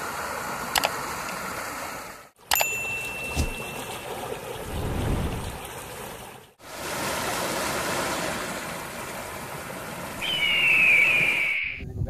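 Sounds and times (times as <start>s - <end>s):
waterfall and stream rushing: 0.0s - 11.7s
high whistling tone: 10.2s - 11.9s.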